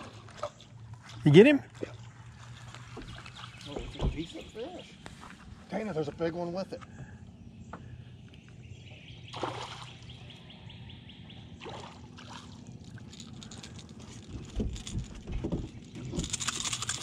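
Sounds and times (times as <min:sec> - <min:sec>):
steady low hum: 0:00.0 - 0:17.0
fish splashing at water surface: 0:09.3 - 0:10.1.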